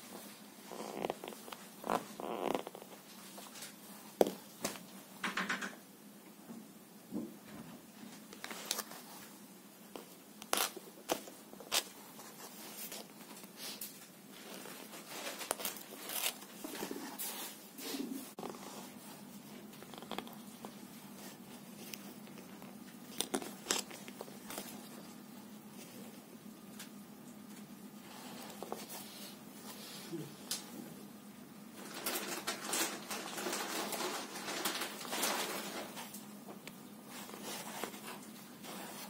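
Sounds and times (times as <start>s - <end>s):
low steady hum: 5.8s - 39.0s
paper crinkling: 8.3s - 17.6s, 18.4s - 25.2s, 31.8s - 36.4s.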